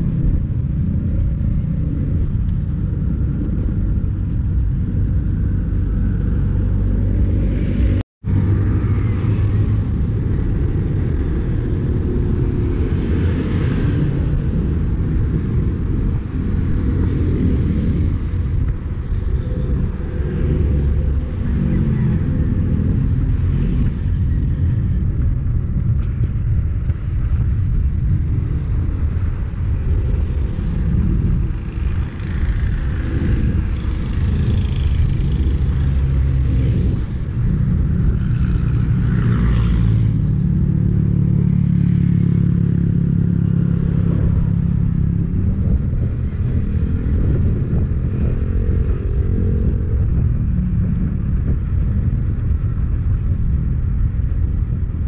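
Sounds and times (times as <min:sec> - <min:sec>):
traffic passing: 0:00.0 - 0:55.0
wind rumble on microphone: 0:00.0 - 0:55.0.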